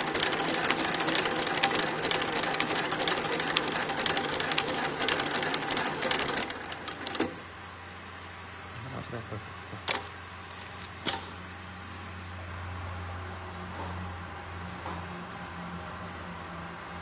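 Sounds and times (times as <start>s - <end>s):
stitching machine clatter: 0.0s - 7.4s.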